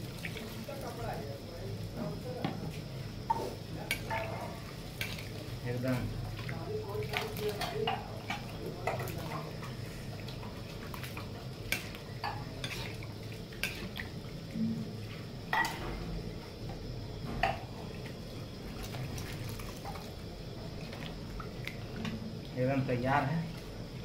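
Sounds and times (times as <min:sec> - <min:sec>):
ladle stirring thick gravy: 0:03.3 - 0:14.5.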